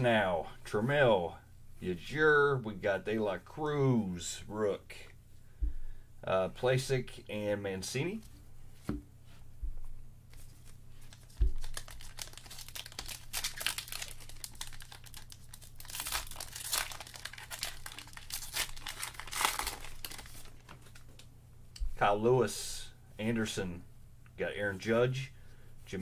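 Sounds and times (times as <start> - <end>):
cards rustling: 10.3 - 21.3
wrapper crinkling and tearing: 11.0 - 21.3.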